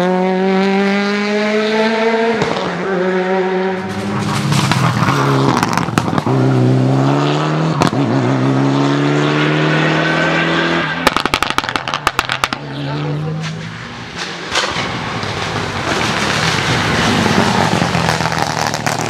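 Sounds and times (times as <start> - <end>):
rally car engine at full throttle: 0.0 - 19.0
sharp cracks: 11.0 - 12.7, 13.4 - 19.0.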